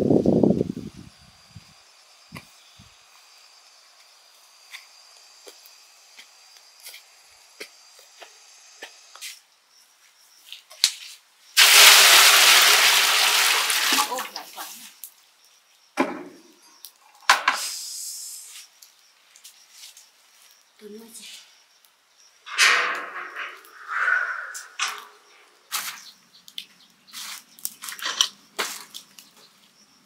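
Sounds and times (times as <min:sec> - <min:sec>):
water pouring into metal pot: 0:11.6 - 0:14.4
water splashing: 0:11.6 - 0:14.5.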